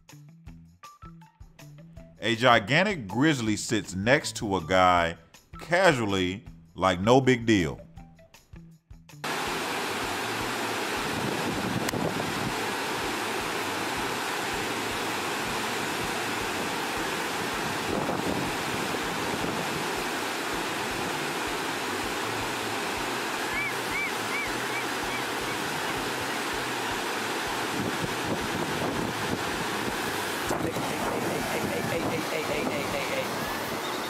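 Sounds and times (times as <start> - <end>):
river rushing: 9.2 - 34.0
wind buffeting microphone: 10.9 - 12.8, 17.4 - 20.0, 27.7 - 34.0
high chirps: 23.5 - 25.6.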